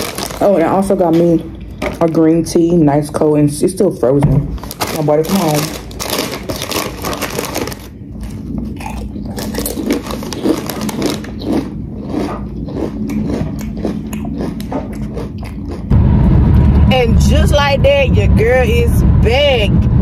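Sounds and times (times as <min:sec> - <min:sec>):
chip bag crinkling: 0:00.0 - 0:02.2, 0:04.6 - 0:14.6.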